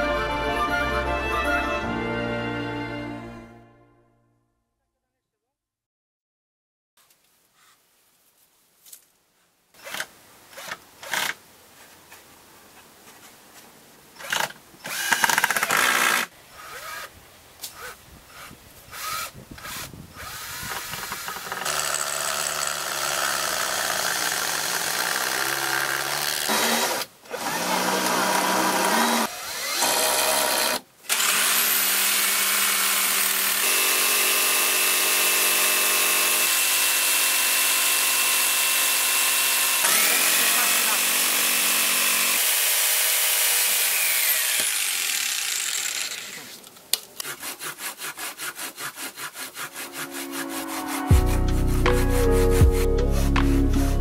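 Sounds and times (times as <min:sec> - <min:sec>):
cordless drill driving screws: 0:14.2 - 0:17.1, 0:17.7 - 0:46.6
jigsaw whining: 0:14.2 - 0:17.1, 0:17.8 - 0:46.6.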